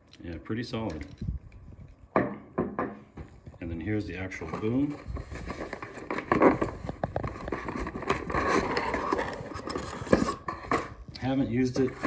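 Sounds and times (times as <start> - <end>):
cardboard packaging scraping and rustling: 4.3 - 12.0.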